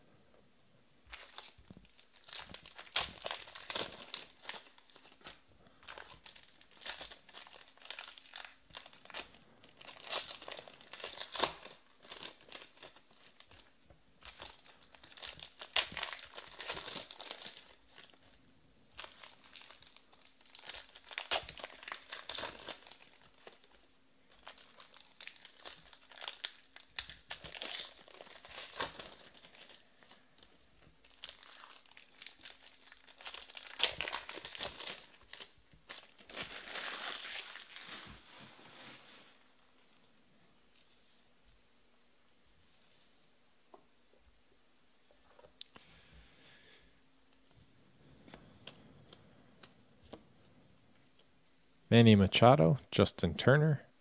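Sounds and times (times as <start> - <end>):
foil wrappers crinkling and tearing: 1.1 - 39.4.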